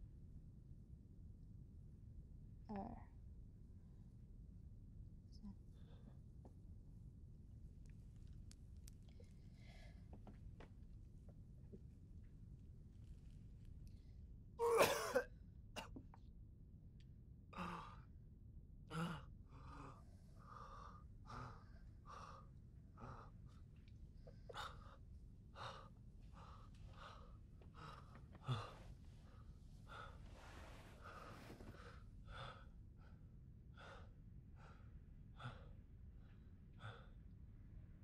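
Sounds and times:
man coughing: 0:14.6 - 0:15.9.

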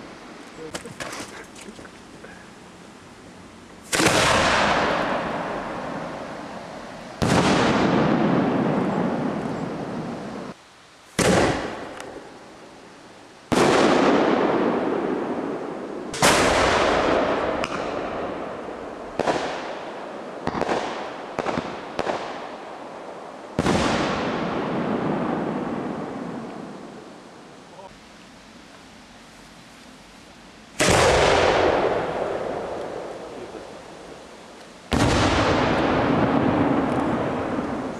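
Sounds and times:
firework crackling: 0:00.0 - 0:27.9, 0:28.7 - 0:37.9
firework shells bursting: 0:03.8 - 0:12.4, 0:13.5 - 0:22.6, 0:30.8 - 0:37.9
rolling echo of bangs: 0:03.9 - 0:06.1, 0:07.2 - 0:10.0, 0:11.2 - 0:12.2, 0:13.5 - 0:22.5, 0:30.8 - 0:33.6, 0:34.9 - 0:37.9.

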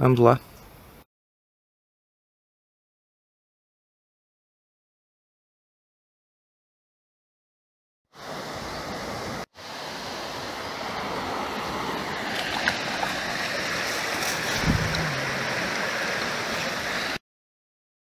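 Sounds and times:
river water rushing over stones: 0:08.2 - 0:17.2
dull thump: 0:14.5 - 0:15.1.

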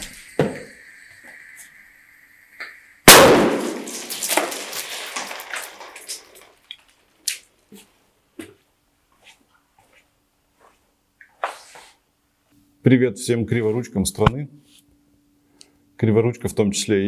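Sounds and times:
grenade bang with crackling echo: 0:03.1 - 0:06.3
footsteps: 0:03.8 - 0:12.0.

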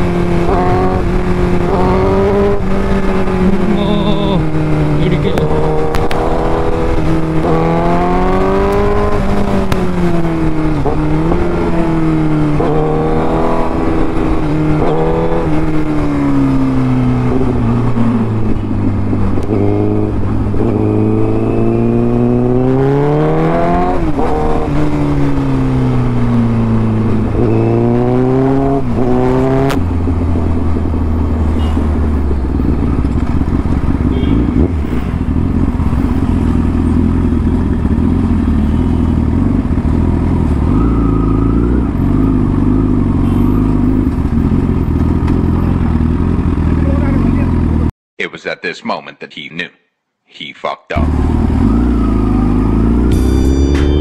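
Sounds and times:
motorcycle engine revving: 0:00.0 - 0:47.9, 0:51.0 - 0:54.0.

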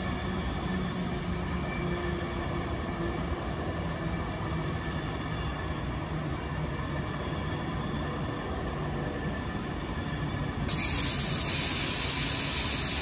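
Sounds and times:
electric train rumbling past: 0:00.0 - 0:13.0
loud steady hiss: 0:10.7 - 0:13.0.

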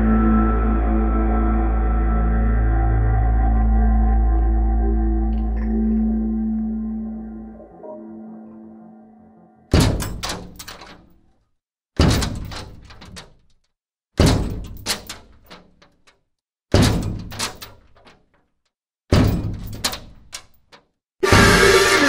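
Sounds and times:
heavy slamming impacts with clattering: 0:09.7 - 0:11.2, 0:12.0 - 0:13.6, 0:14.2 - 0:18.4, 0:19.1 - 0:22.0.

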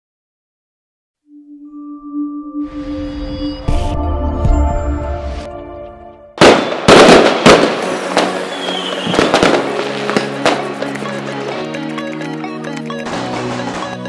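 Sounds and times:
logo jingle: 0:01.3 - 0:06.5
firework whistle: 0:06.4 - 0:11.0
fireworks bangs and crackling: 0:06.4 - 0:11.6, 0:13.0 - 0:14.0.

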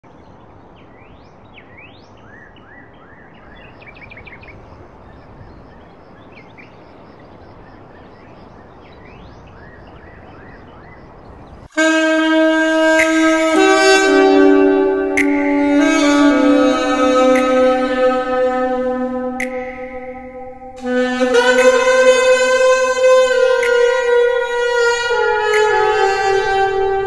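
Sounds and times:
birds chirping: 0:00.0 - 0:11.8, 0:12.8 - 0:27.0
steady outdoor hiss: 0:00.0 - 0:27.0
alto saxophone melody: 0:11.6 - 0:27.0.

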